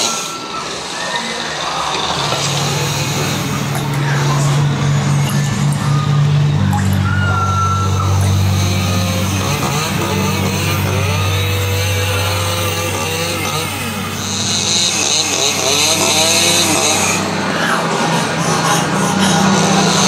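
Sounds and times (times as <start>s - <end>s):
chainsaw engine revving: 0.0s - 20.0s
people yelling: 0.0s - 20.0s
low soundtrack hum: 0.3s - 20.0s.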